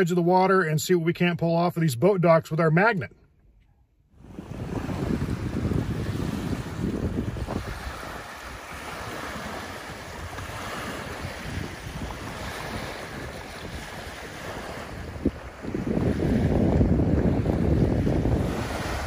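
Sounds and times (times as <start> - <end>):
wind buffeting microphone: 4.1 - 19.0
waves lapping on gravel shore: 4.2 - 19.0.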